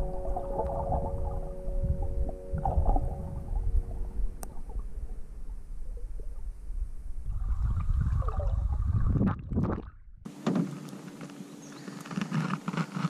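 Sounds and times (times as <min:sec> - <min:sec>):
faint steady hum: 0:00.0 - 0:09.2
gurgling water: 0:00.0 - 0:10.1
muffled underwater rumble: 0:00.0 - 0:10.2.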